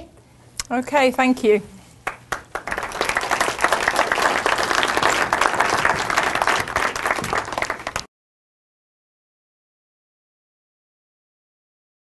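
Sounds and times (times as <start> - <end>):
audience applauding: 2.0 - 8.1.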